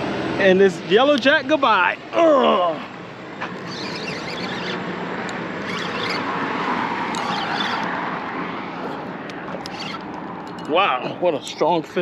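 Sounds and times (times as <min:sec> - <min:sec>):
road vehicle passing: 0:00.0 - 0:12.0.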